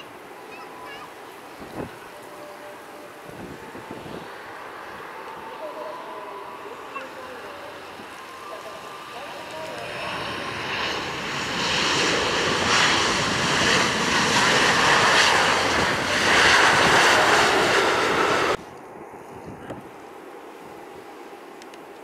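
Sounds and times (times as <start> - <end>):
airliner engines running: 0.0 - 22.0.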